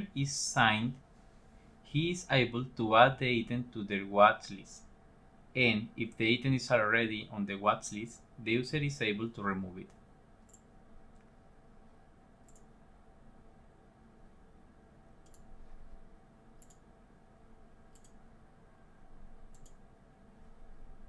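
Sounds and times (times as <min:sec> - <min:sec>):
low background hum: 0:00.0 - 0:21.0
computer mouse clicks: 0:09.8 - 0:11.3, 0:12.4 - 0:12.7, 0:15.2 - 0:15.5, 0:16.6 - 0:16.9, 0:17.9 - 0:18.2, 0:19.5 - 0:19.8.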